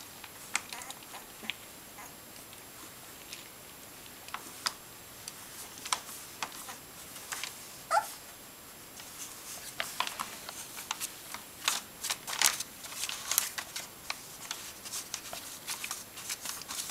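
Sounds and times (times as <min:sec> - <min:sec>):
puppy squeak: 0:07.9 - 0:08.2
puppy claws scratching on paper: 0:09.0 - 0:16.9.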